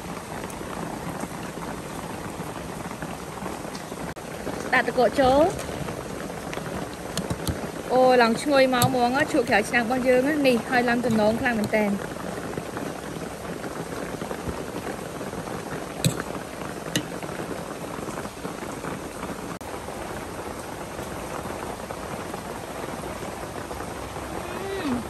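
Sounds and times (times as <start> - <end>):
spoon clinking ceramic bowl: 16.1 - 16.3.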